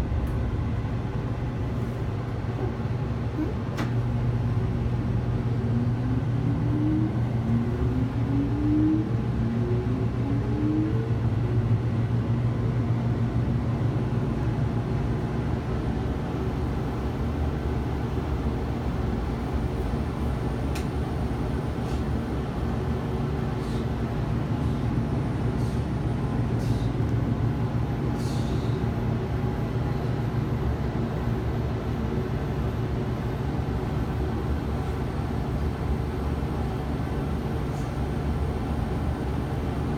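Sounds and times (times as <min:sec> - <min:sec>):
low hum and rumble: 0:00.0 - 0:39.9.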